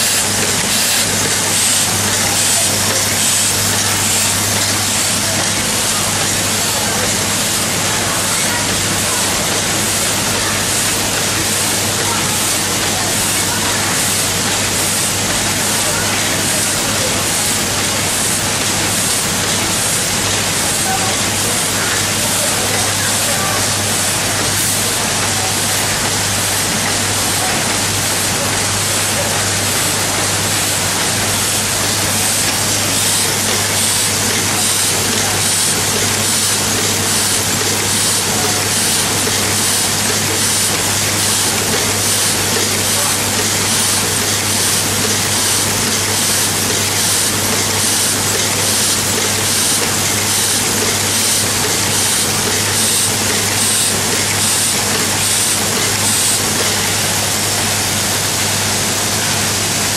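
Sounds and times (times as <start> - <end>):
machine rattle and hiss: 0.0 - 59.9.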